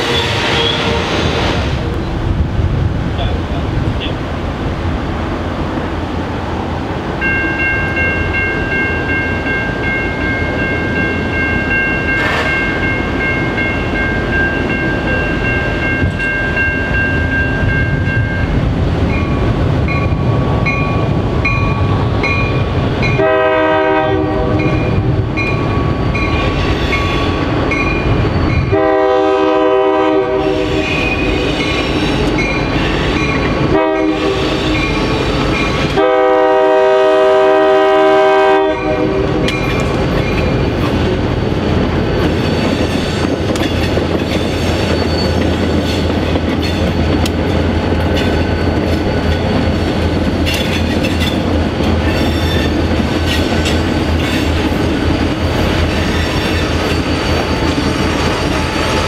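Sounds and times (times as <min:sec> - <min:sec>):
diesel locomotive engine rumble: 0:00.0 - 0:59.0
crossing bell ringing: 0:07.2 - 0:23.9, 0:24.5 - 0:29.1
locomotive horn blasts: 0:23.2 - 0:25.1, 0:28.7 - 0:31.0, 0:33.7 - 0:34.7, 0:35.9 - 0:39.4.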